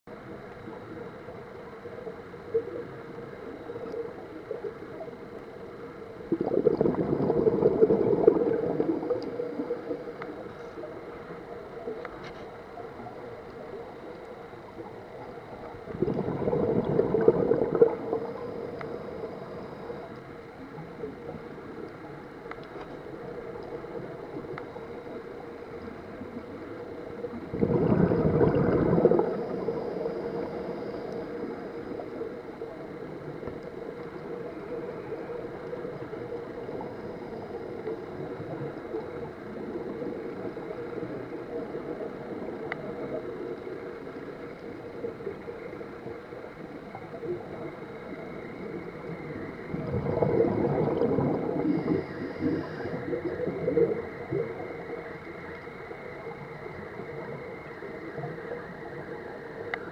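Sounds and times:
steady low hum: 0:00.1 - 0:56.1
scuba exhale bubbles: 0:06.1 - 0:11.1, 0:14.8 - 0:21.6, 0:25.9 - 0:55.0.

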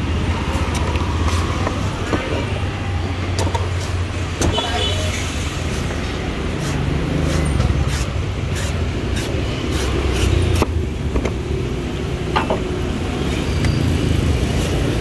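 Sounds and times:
street traffic rumble: 0:00.0 - 0:15.0
knife cutting coconut husk: 0:05.7 - 0:10.8.

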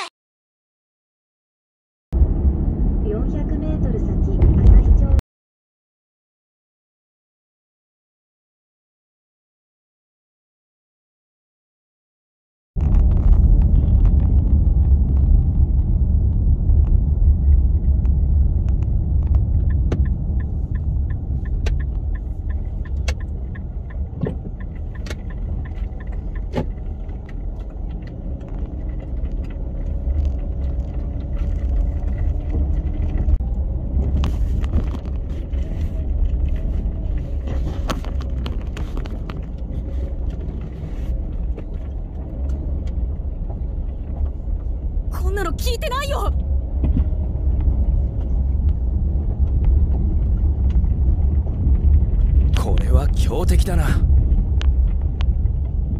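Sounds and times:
car road rumble: 0:02.2 - 0:05.2, 0:12.8 - 0:55.9
clicks and knocks from rough road: 0:12.8 - 0:44.9, 0:46.4 - 0:55.9.

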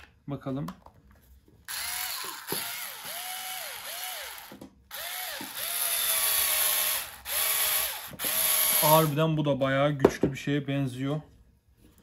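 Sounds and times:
cordless screwdriver motor whining: 0:01.7 - 0:09.1.

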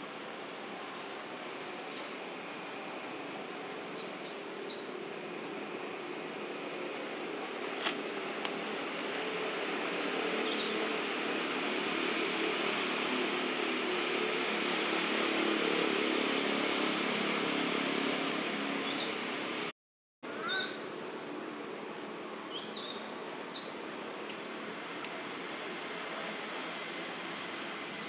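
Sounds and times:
steady outdoor hiss: 0:00.0 - 0:28.0.

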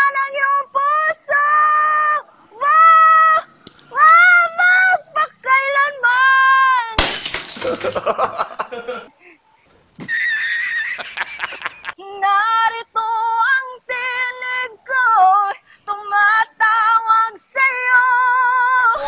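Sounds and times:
woman singing unaccompanied: 0:00.0 - 0:07.0, 0:12.0 - 0:19.0.

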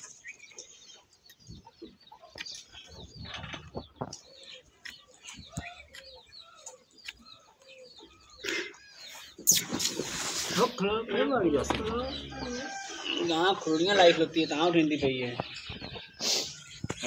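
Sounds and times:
birds chirping and clucking: 0:00.0 - 0:17.0.

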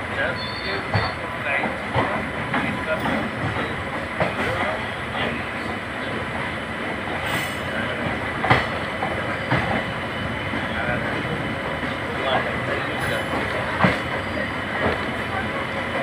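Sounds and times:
train rolling rumble: 0:00.0 - 0:16.0.

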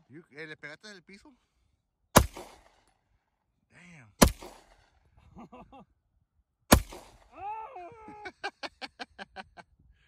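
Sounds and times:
pistol shot: 0:02.2 - 0:02.9, 0:04.2 - 0:04.9, 0:06.7 - 0:07.3.

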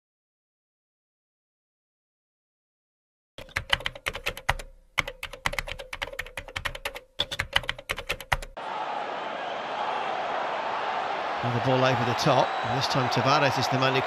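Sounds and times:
keyboard typing: 0:03.4 - 0:08.6.

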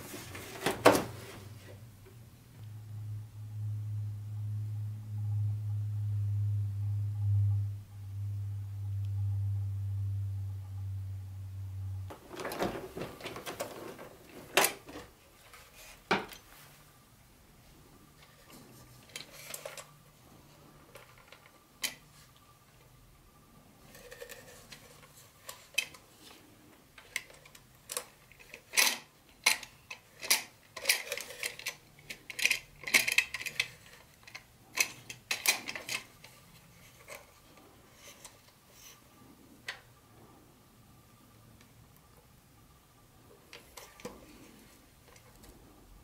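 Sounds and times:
plastic packaging rustling: 0:12.1 - 0:16.0.

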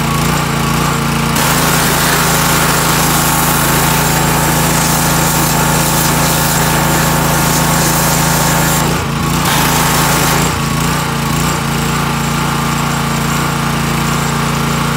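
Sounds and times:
pressure washer engine running: 0:00.0 - 0:14.9
water jet hissing: 0:01.4 - 0:10.8.

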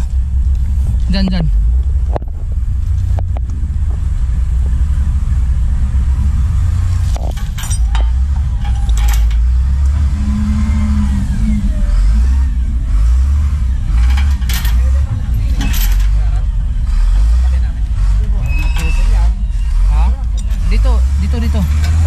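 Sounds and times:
truck engine running: 0:00.0 - 0:22.0
sharp clicks and knocks: 0:07.0 - 0:10.1, 0:13.8 - 0:19.0.

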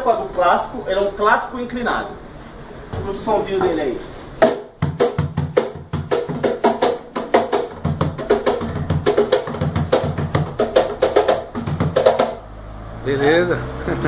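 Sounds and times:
box drum played by hand: 0:04.4 - 0:12.5.

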